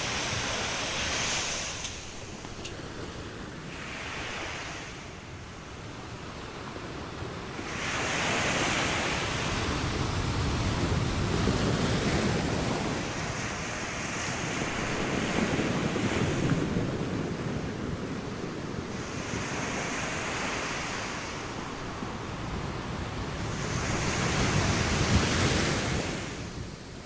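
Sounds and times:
small waves breaking on sand: 0:00.0 - 0:27.0.

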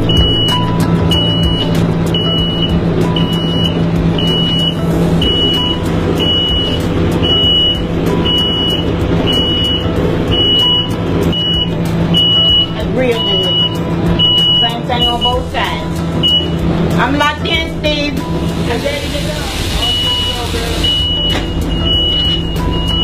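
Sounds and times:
steady low hum: 0:00.0 - 0:19.3
short high warning beeps: 0:03.3 - 0:15.4, 0:19.9 - 0:23.0.

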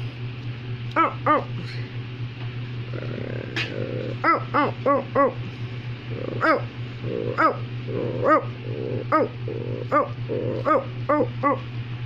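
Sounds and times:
dog growling: 0:02.8 - 0:11.7
dog barking: 0:06.3 - 0:06.7, 0:07.3 - 0:11.6.

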